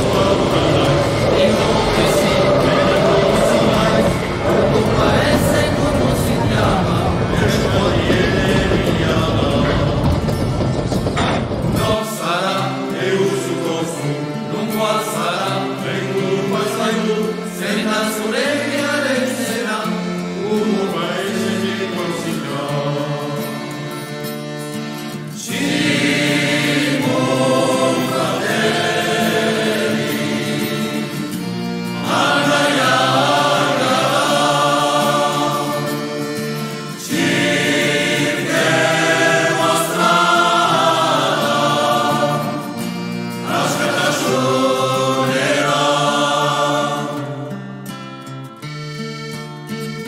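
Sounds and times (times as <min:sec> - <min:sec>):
sustained low notes: 0:00.0 - 0:12.0
choir singing: 0:00.0 - 0:24.1, 0:25.0 - 0:48.0.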